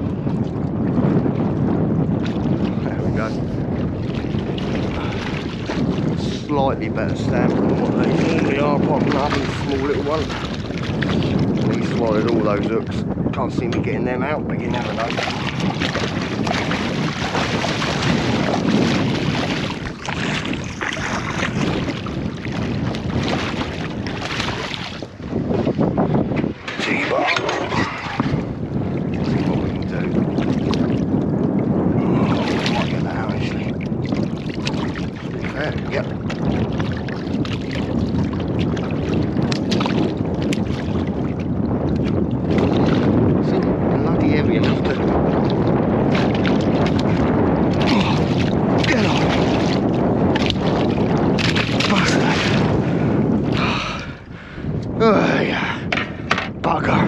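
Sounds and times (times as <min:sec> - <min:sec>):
water slapping boat hull: 0:00.0 - 0:57.0
wind buffeting microphone: 0:00.0 - 0:57.0
fish splashing in water: 0:14.8 - 0:25.1
sharp knocks of eel thrashing: 0:55.9 - 0:56.6.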